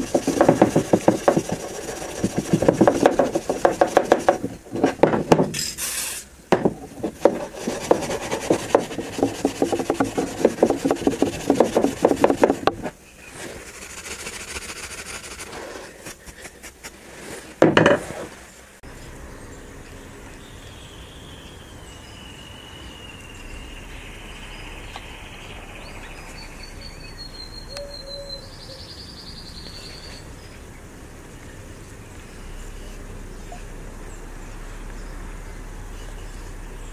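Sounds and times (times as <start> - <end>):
faint high chirps: 19.3 - 30.7.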